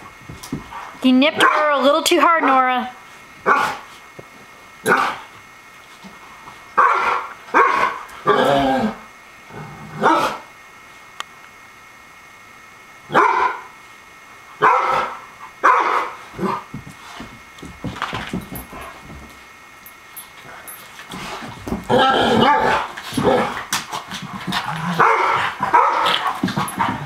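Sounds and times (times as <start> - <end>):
dogs barking: 1.4 - 2.7, 3.4 - 3.8, 4.8 - 5.2, 6.8 - 8.4, 10.0 - 10.5, 13.1 - 13.7, 14.6 - 16.6, 24.9 - 26.3.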